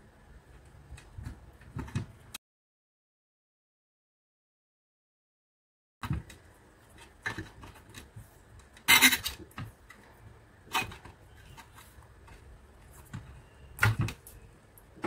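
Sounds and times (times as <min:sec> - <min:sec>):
handling of tape and wires: 0:06.0 - 0:15.0.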